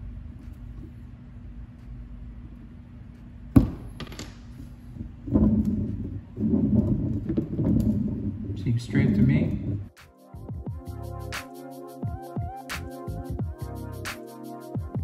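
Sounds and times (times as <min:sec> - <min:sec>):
low hum: 0:00.0 - 0:10.6
background music: 0:08.6 - 0:15.0.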